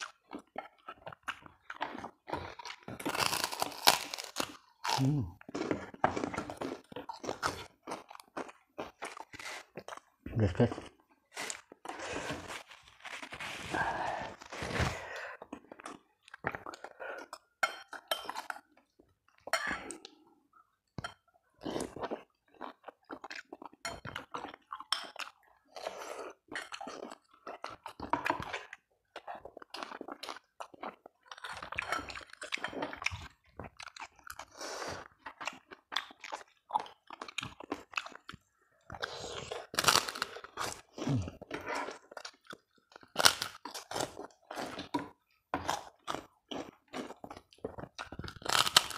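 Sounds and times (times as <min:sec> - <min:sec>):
crunching crackers: 0:00.0 - 0:10.2, 0:11.6 - 0:16.5, 0:39.2 - 0:48.9.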